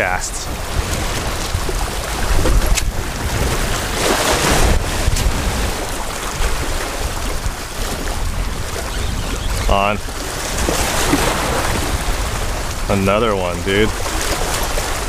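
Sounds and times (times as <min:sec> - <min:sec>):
ocean surf: 0:00.0 - 0:15.0
wind buffeting microphone: 0:00.0 - 0:15.0.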